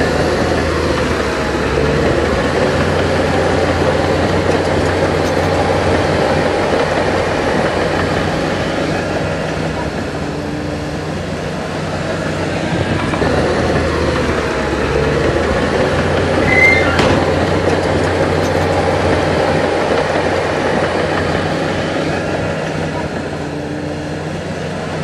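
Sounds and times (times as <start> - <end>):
heavy diesel machinery running: 0.0 - 25.0
high squeal: 16.3 - 18.0.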